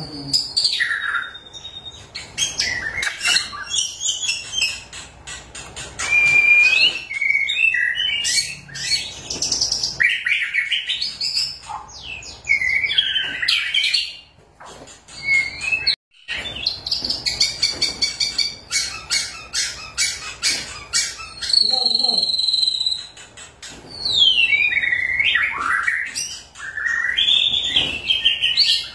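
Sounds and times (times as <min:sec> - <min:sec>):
bird singing whistled phrases: 0:00.3 - 0:04.8, 0:06.0 - 0:09.2, 0:15.2 - 0:16.7, 0:21.2 - 0:23.2, 0:23.9 - 0:28.9
bird chattering notes: 0:14.7 - 0:28.9.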